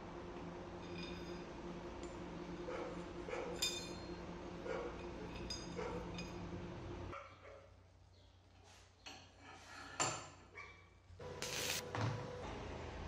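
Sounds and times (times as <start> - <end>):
steady background hum: 0.0 - 7.2.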